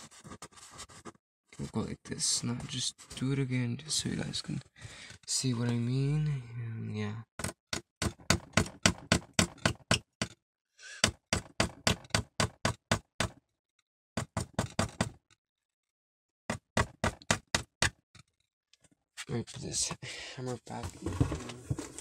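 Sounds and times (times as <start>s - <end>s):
hammer tapping nail into cardboard: 7.4s - 10.4s, 11.0s - 13.4s, 14.2s - 15.2s, 16.5s - 18.0s.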